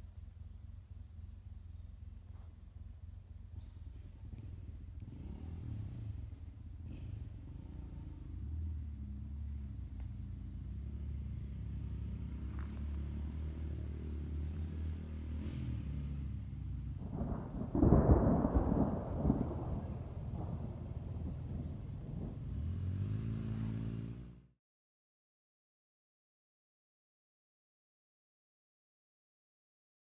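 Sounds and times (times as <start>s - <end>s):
thunder rumbling: 16.9s - 23.4s
loud thunder peal: 17.0s - 22.9s.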